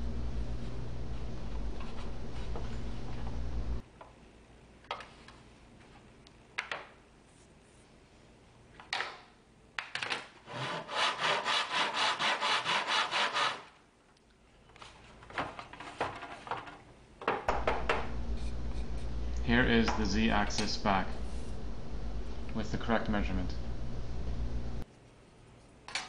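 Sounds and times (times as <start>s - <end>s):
hand saw cutting board: 10.4s - 13.7s.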